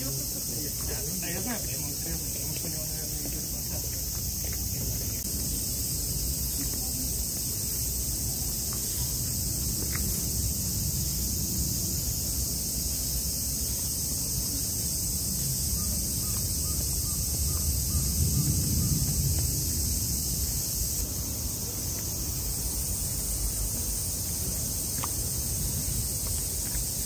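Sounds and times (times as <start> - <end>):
insect chorus buzzing: 0.0 - 27.0.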